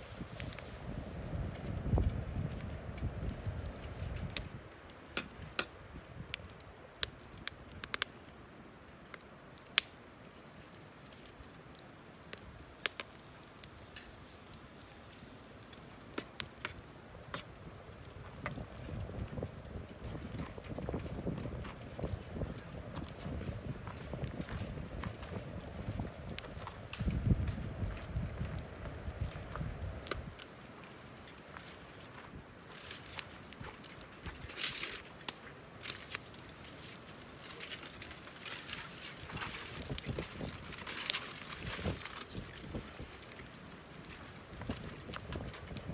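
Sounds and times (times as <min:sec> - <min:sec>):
fire pops: 0:00.0 - 0:45.9
wood fire crackling: 0:00.0 - 0:45.9
aluminium foil crinkling: 0:32.7 - 0:45.8.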